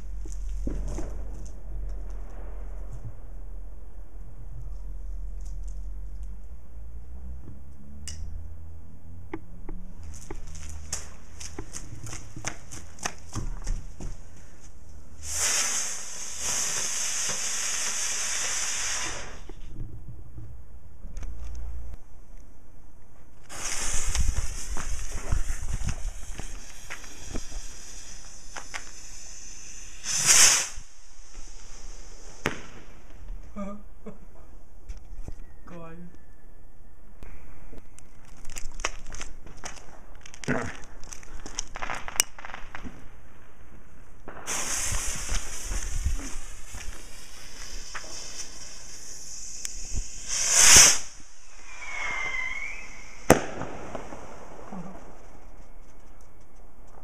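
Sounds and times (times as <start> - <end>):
faint firework cracks: 0.0 - 3.6, 10.0 - 19.7, 23.4 - 33.6, 37.2 - 43.2, 44.2 - 57.0
firework fizzing hiss: 0.0 - 3.6, 10.1 - 19.7, 23.4 - 33.5, 44.2 - 56.2
firework sharp bang: 0.0 - 3.6, 23.5 - 33.2, 44.3 - 55.4
firework rush of noise: 0.0 - 7.4, 9.8 - 20.6, 23.4 - 33.5, 38.1 - 57.0
faint whistle: 35.3 - 37.1, 51.5 - 53.3.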